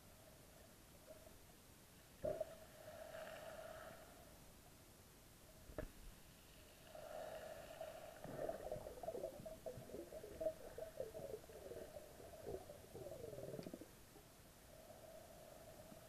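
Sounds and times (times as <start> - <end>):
underwater bubbling: 7.0 - 14.3.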